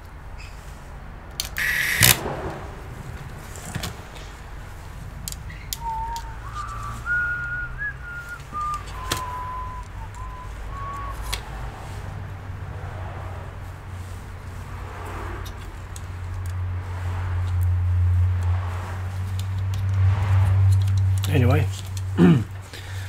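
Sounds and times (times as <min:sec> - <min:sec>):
loud hissing burst: 0:01.6 - 0:03.0
clicks and taps of parts: 0:05.2 - 0:06.3, 0:20.6 - 0:22.1
person whistling a tune: 0:05.8 - 0:11.4.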